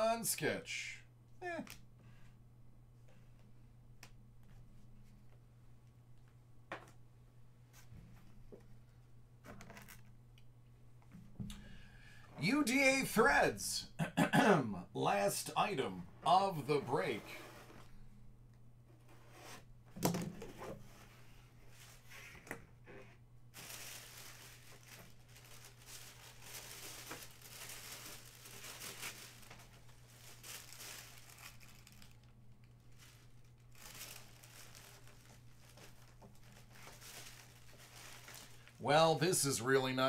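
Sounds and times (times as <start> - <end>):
wrapping crinkling and tearing: 23.5 - 39.2.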